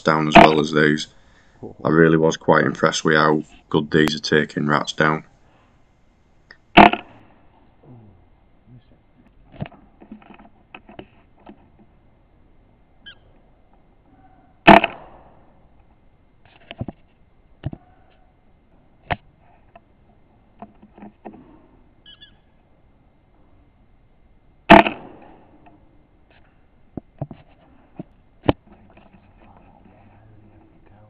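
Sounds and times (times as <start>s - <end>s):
air rifle shots: 0.0s - 1.0s, 6.7s - 7.7s, 14.6s - 15.7s, 24.7s - 26.0s.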